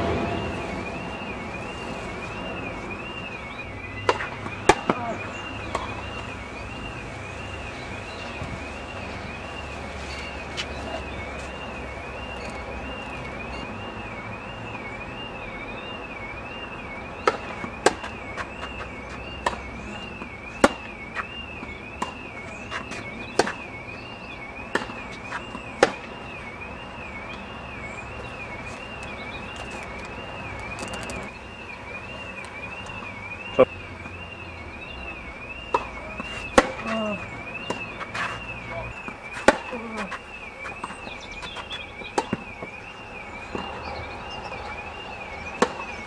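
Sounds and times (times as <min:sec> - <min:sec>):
tennis balls struck by rackets: 0:04.0 - 0:06.2, 0:17.2 - 0:24.0, 0:24.6 - 0:26.2, 0:35.7 - 0:42.9, 0:43.5 - 0:44.8, 0:45.5 - 0:46.0.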